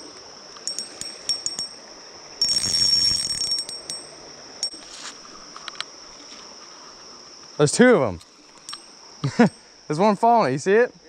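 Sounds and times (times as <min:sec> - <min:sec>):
insects droning: 0:00.0 - 0:11.0
sharp ringing clicks: 0:02.4 - 0:04.8.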